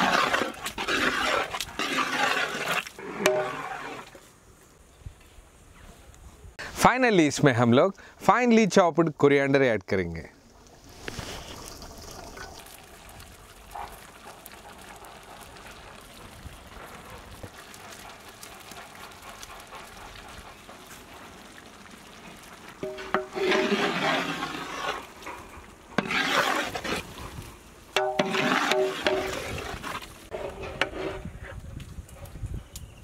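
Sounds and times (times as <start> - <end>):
curry sloshing in metal pot: 0.0 - 4.2, 22.3 - 25.2, 26.0 - 27.3, 28.0 - 31.4.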